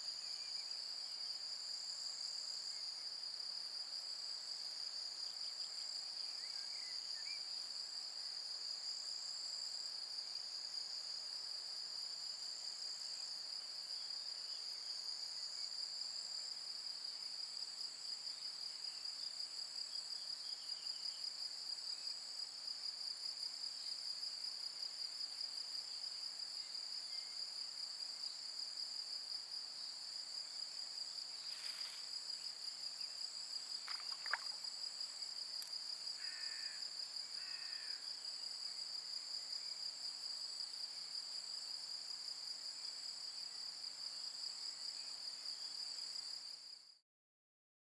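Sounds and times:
insects trilling: 29.8 - 40.9.

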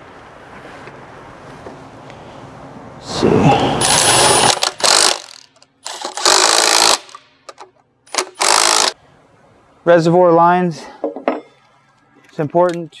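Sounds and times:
impact driver bursts: 3.8 - 7.2, 8.1 - 9.0.

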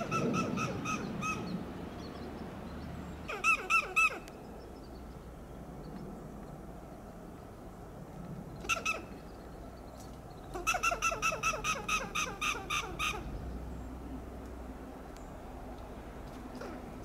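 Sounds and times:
squirrel alarm calls: 0.0 - 1.6, 3.2 - 4.4, 8.6 - 9.3, 10.4 - 13.5.

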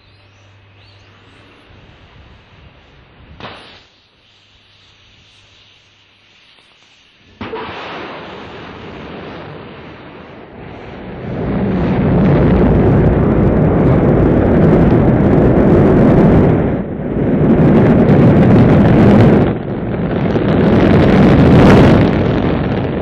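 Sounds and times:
deep rocket engine rumble: 0.0 - 3.8, 7.0 - 23.0
sudden burst of noise: 1.5 - 4.1, 6.1 - 23.0.

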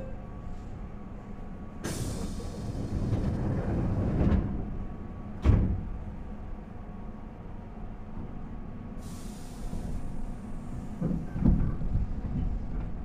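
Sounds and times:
train doors thumping shut: 1.8 - 6.2, 10.8 - 13.0
compressed air hiss: 9.0 - 10.1.

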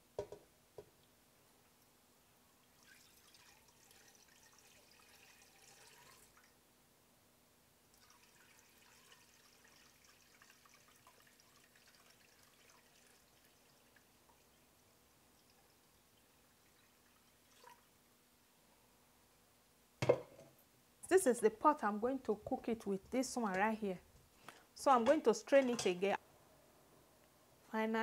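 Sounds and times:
liquid pouring through strainer: 2.6 - 6.5, 7.9 - 14.6, 15.4 - 17.9.

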